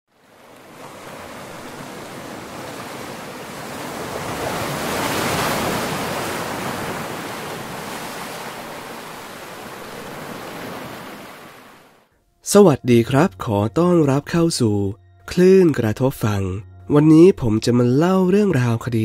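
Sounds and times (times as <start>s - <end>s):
ocean waves washing in: 0.1s - 12.1s.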